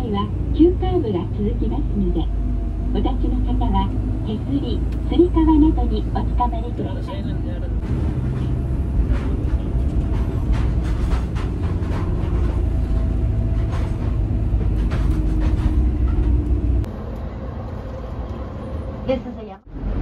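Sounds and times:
passenger train rumbling and rattling: 0.0 - 20.0.

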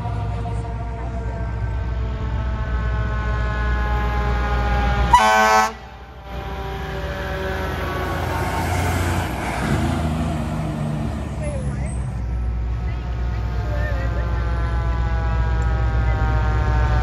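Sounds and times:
siren drone: 0.0 - 17.0
truck diesel engine: 0.0 - 17.0
air horn blast: 2.6 - 8.6, 14.3 - 17.0.

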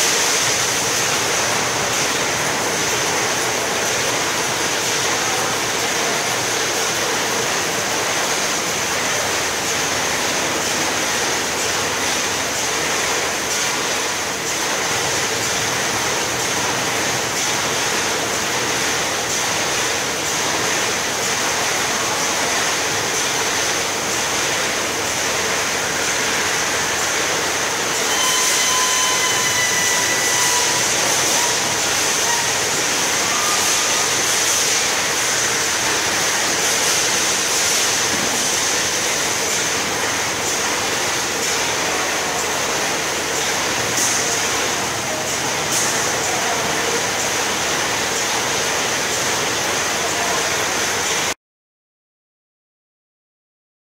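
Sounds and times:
steady machine noise: 0.0 - 51.4
thin high whine: 27.9 - 34.3.

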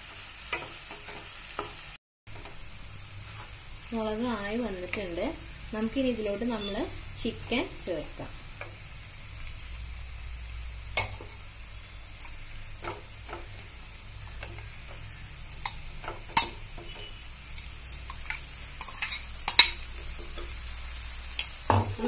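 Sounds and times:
sizzling in hot oil: 0.0 - 22.0
utensils knocking against pan: 12.2 - 13.6, 15.6 - 17.1.

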